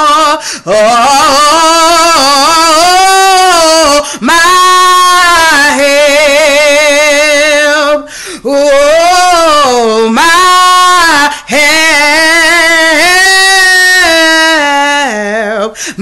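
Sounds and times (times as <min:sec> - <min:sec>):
woman singing a cappella: 0:00.0 - 0:16.0
singer breathing: 0:00.4 - 0:00.7, 0:04.0 - 0:04.2, 0:08.0 - 0:08.5, 0:11.3 - 0:11.5, 0:15.7 - 0:16.0.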